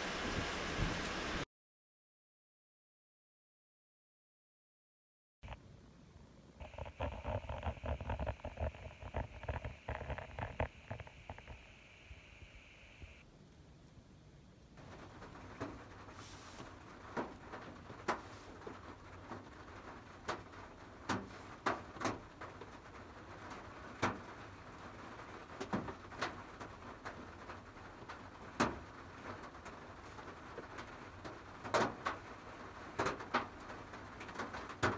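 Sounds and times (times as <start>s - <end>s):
rain pattering on van roof: 6.6s - 11.9s, 13.3s - 34.9s.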